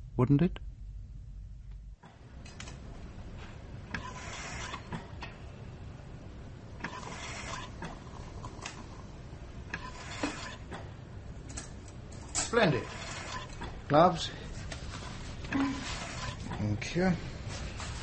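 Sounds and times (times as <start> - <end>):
low background rumble: 0.0 - 3.4.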